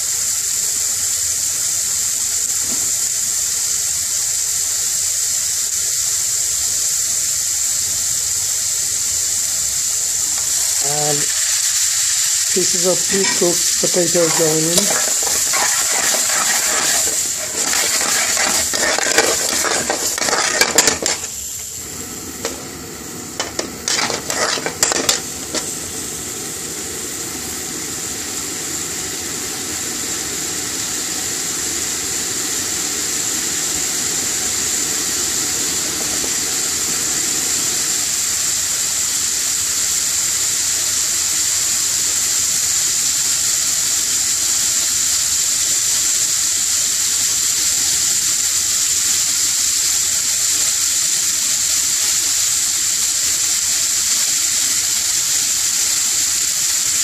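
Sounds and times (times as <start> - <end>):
sauce sizzling: 0.0 - 57.0
metal spoon scraping a frying pan: 12.6 - 21.4, 23.4 - 25.8.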